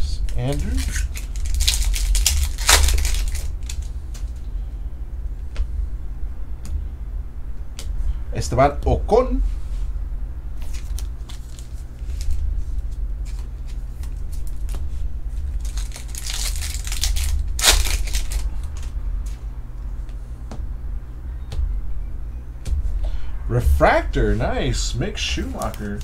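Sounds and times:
steady low hum: 0.0s - 26.0s
cards clicking: 0.2s - 4.4s, 25.4s - 26.0s
wrapper tearing and crinkling: 0.3s - 4.3s, 10.6s - 12.4s, 15.5s - 18.9s.

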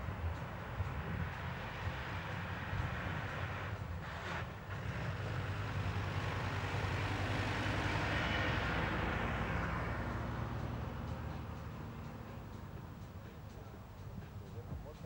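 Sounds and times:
motorcycle engine passing by: 5.1s - 10.5s.

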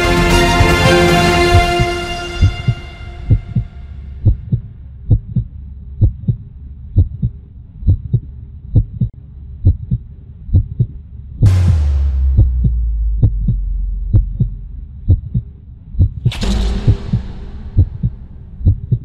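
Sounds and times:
orchestral music: 0.0s - 4.0s, 11.5s - 14.8s, 16.3s - 19.0s
heartbeat thumps: 1.6s - 6.4s, 7.0s - 19.0s
deep rumble: 11.4s - 19.0s
whoosh and boom: 11.5s - 15.4s, 16.3s - 19.0s.

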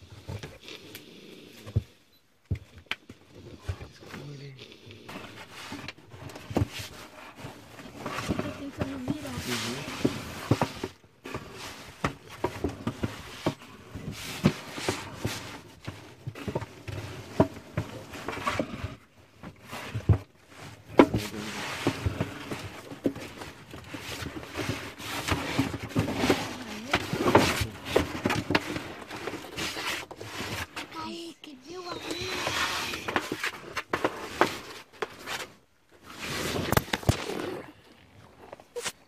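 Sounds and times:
knocks and scrapes on wooden crate: 5.1s - 37.5s
low voices: 31.0s - 33.2s.

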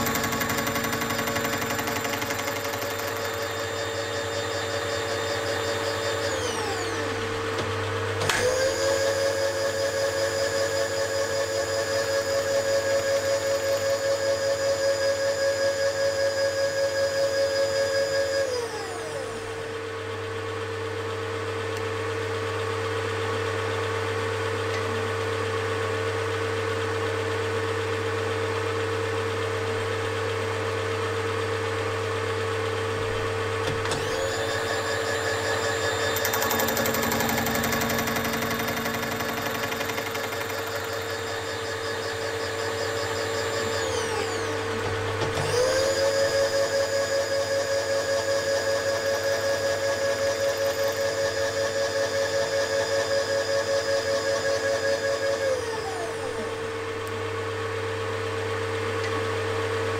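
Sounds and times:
motor whining: 0.0s - 10.3s, 33.7s - 47.6s
milling machine running: 0.0s - 14.6s, 33.0s - 57.0s.

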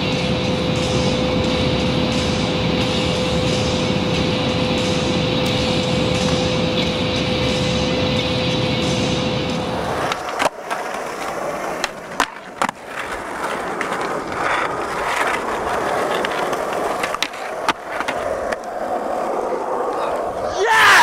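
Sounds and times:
skateboard wheels rolling on concrete: 0.0s - 21.0s
skateboard scraping concrete ledge: 9.4s - 21.0s
skateboard clacks: 9.5s - 21.0s.

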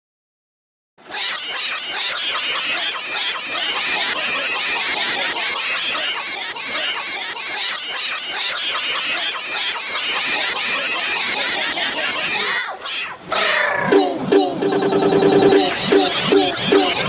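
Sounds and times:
music: 13.9s - 17.0s.

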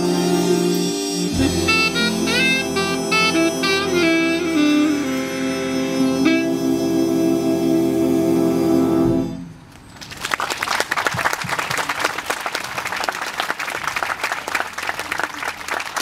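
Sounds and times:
big band final chord: 0.0s - 9.4s
audience applause: 10.0s - 16.0s.

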